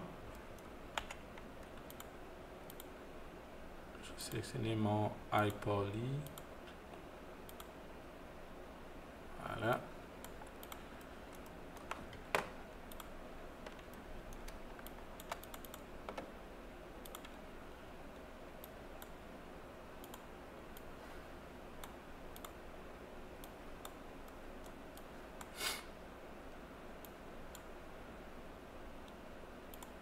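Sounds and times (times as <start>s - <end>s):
mouse and keyboard clicks: 10.2s - 16.3s.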